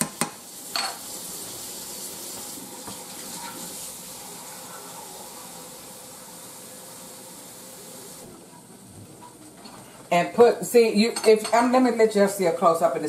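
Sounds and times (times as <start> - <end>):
saucepan hissing on stovetop: 0.0 - 8.3.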